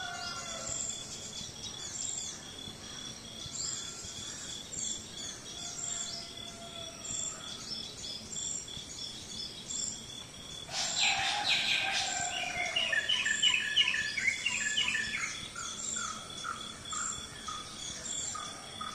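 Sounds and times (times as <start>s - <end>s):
insects trilling: 0.0s - 18.9s
birds chirping: 10.7s - 18.6s.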